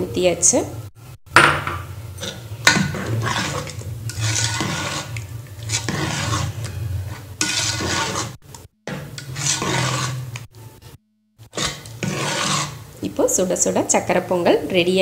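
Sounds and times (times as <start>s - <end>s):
spatula scraping a pot: 2.2s - 10.5s, 11.4s - 13.5s.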